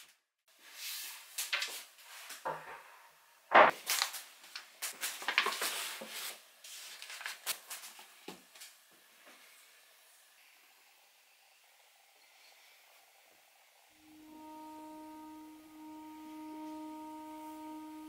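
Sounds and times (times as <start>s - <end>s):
paper rustling: 3.8s - 8.1s.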